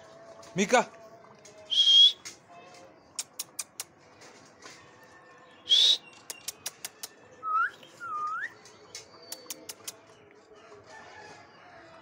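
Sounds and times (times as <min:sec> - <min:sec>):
sharp clicking sounds: 0:03.2 - 0:04.0, 0:06.1 - 0:07.2, 0:08.2 - 0:10.1.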